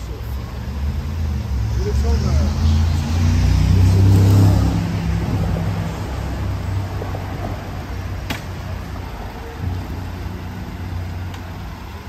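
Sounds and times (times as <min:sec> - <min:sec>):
vehicle engine rumbling: 0:00.0 - 0:12.0.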